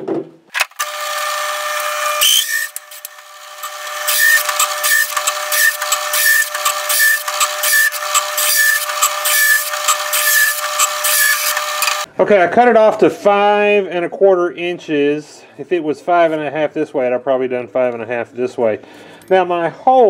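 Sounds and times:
drill press motor humming: 0.7 - 12.1
hole saw rasping through wood: 3.4 - 12.1.

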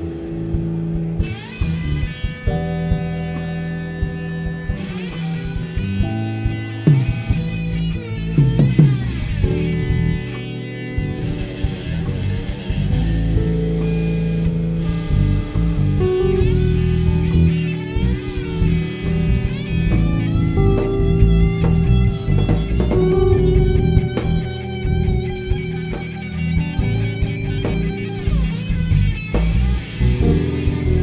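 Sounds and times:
slide electric guitar solo: 0.0 - 31.0
steady bass line: 0.0 - 31.0.

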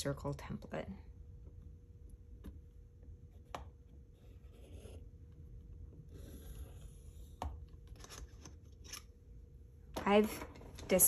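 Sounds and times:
pencil scratching on paper: 3.3 - 5.2, 6.1 - 7.4.

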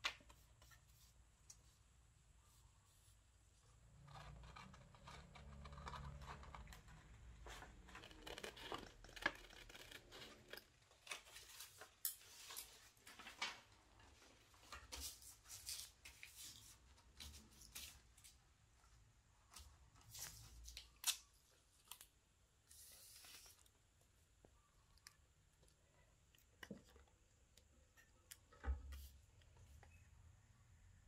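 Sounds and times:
paper crinkling: 4.0 - 18.4.

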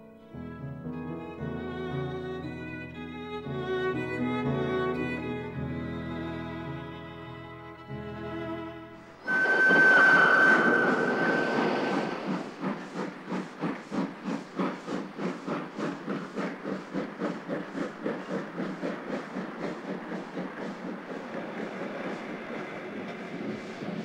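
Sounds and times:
steam locomotive whistle: 9.2 - 12.6
rush of steam: 9.2 - 24.0
steam locomotive exhaust chuffing: 9.2 - 24.0.

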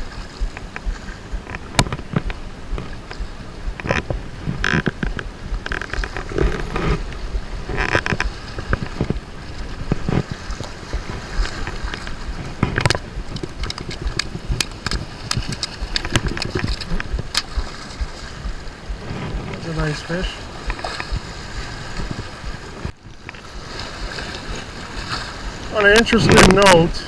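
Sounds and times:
waves washing against rocks: 0.0 - 27.0
wind buffeting the microphone: 0.0 - 27.0
sharp clicks and knocks: 0.4 - 9.2, 9.8 - 17.7.

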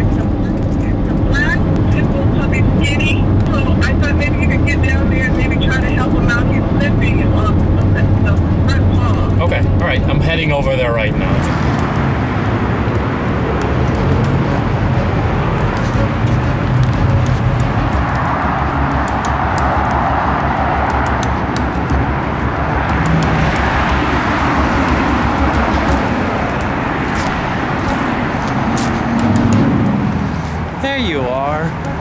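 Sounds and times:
freeway traffic rumble: 0.0 - 32.0
footsteps on dry leaves: 24.2 - 30.8.

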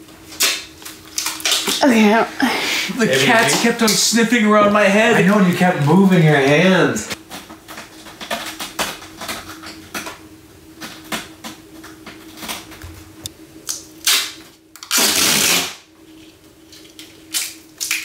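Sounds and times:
duct tape ripping off roll: 0.3 - 1.8, 14.0 - 15.8.

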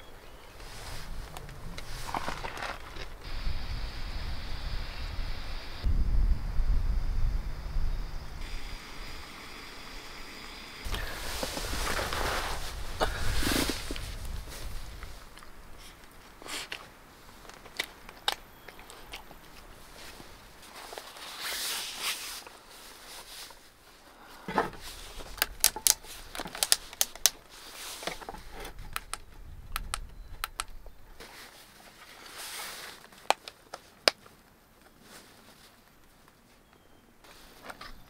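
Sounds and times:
soft rustling: 0.6 - 3.3, 10.8 - 18.1, 18.7 - 28.8, 31.0 - 38.0
plastic clicks and snaps: 25.3 - 27.4, 28.9 - 30.9.

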